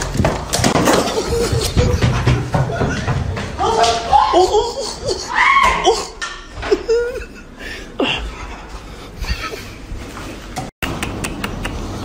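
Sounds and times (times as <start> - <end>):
man chuckling: 0.9 - 3.1, 6.0 - 10.0.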